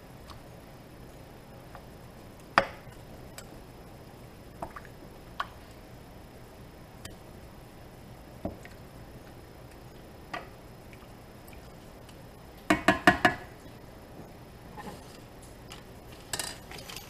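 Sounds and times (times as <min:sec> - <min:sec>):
spoon tapping on a pan: 0:12.7 - 0:13.5.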